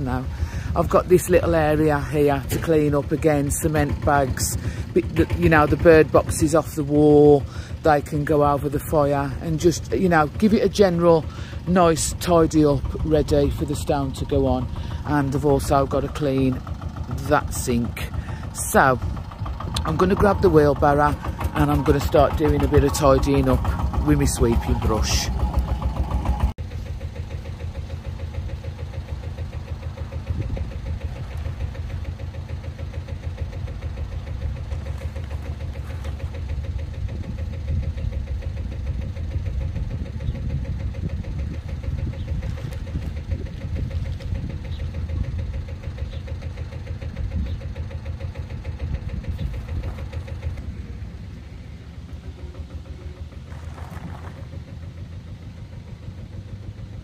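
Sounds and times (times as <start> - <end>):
small engine running: 0.0 - 57.0.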